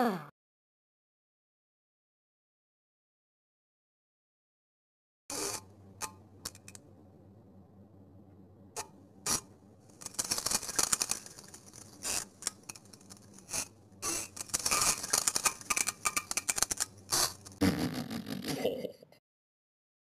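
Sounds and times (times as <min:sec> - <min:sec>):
wet sputtering fart sounds: 0:17.1 - 0:18.9.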